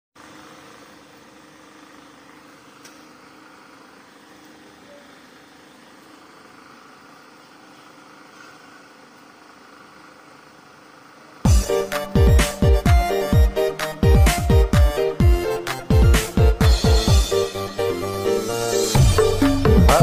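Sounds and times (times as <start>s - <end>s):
small click: 2.8s - 3.1s.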